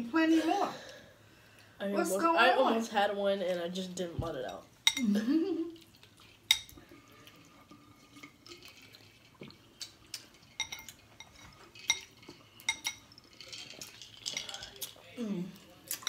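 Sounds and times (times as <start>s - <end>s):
ice cubes clinking in glass: 10.5s - 15.0s.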